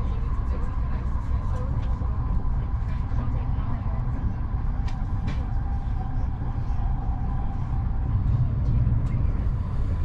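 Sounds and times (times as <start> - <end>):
train wheels on rails: 4.1 - 6.2.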